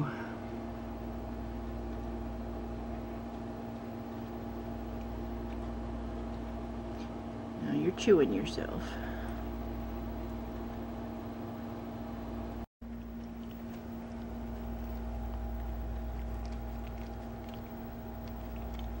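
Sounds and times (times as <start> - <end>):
electrical hum: 0.0 - 19.0
dog chewing its fur: 1.4 - 7.2, 12.8 - 19.0.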